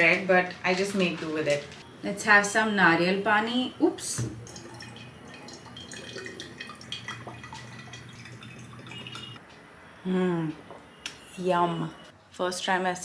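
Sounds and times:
low steady hum: 0:01.6 - 0:12.2
water trickling into a glass: 0:04.2 - 0:09.4.

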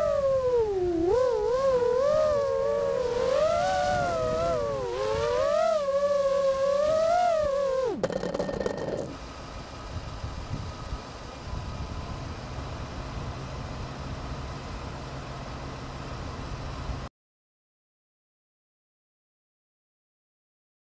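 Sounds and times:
drone motors whining: 0:00.0 - 0:09.2
low hum: 0:00.0 - 0:09.2.

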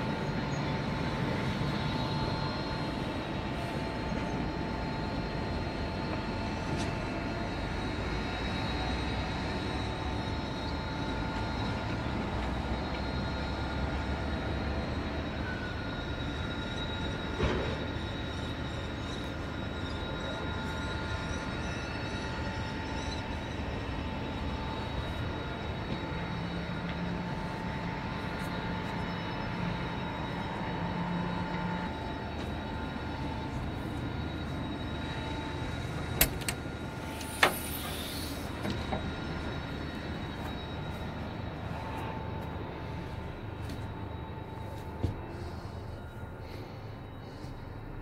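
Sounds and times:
crane machinery rumble and whine: 0:00.0 - 0:48.0.

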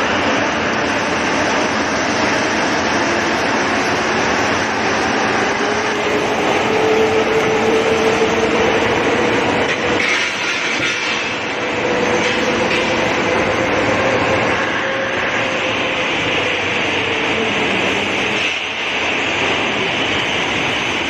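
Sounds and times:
machinery clattering: 0:00.0 - 0:14.8.

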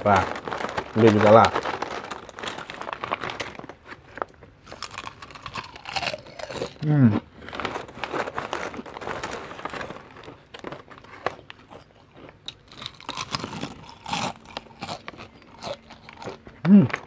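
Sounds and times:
foil snack bag crinkling: 0:00.0 - 0:17.0
chips being crunched: 0:04.7 - 0:06.8, 0:07.9 - 0:17.0.

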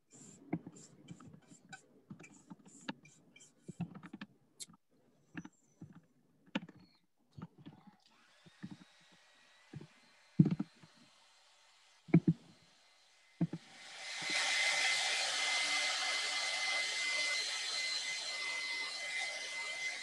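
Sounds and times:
brush scratching on metal pan: 0:00.1 - 0:04.1.

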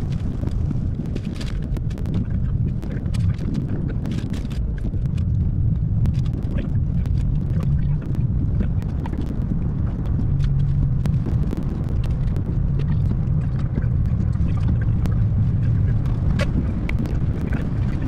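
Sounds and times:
rain ticking on windshield: 0:00.0 - 0:18.0
road and engine rumble in car: 0:00.0 - 0:18.0.

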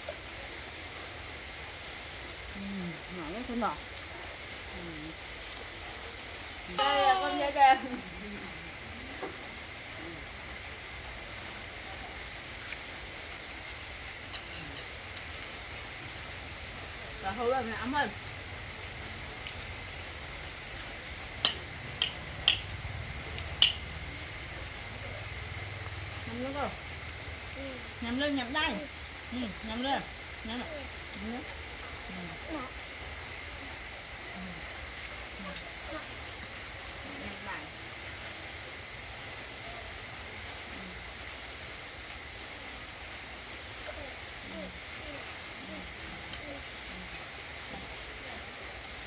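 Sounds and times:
steady background hiss: 0:00.0 - 0:49.0.

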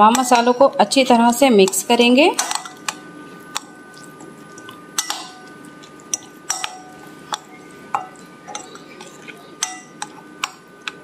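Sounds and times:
metal spoon stirring marinade: 0:01.6 - 0:10.6
spoon clinking against glass: 0:06.2 - 0:10.1.

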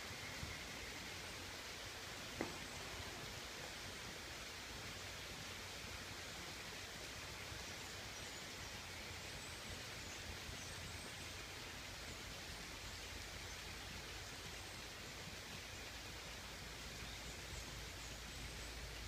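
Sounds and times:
steady rain falling: 0:00.0 - 0:19.0.

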